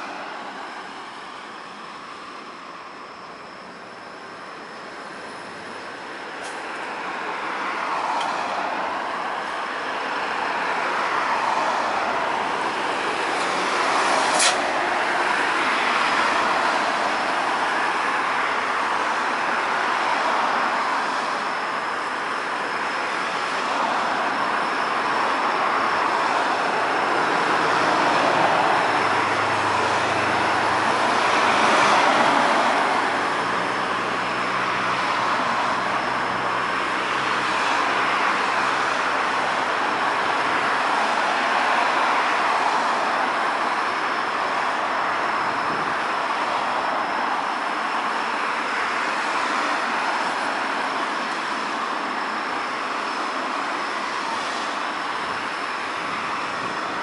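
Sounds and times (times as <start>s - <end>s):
cars passing on a wet street: 0.0s - 3.1s, 5.0s - 57.0s.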